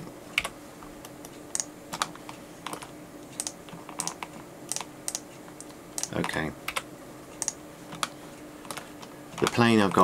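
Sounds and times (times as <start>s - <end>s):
keyboard and mouse clicking: 3.4s - 6.8s, 7.4s - 8.1s.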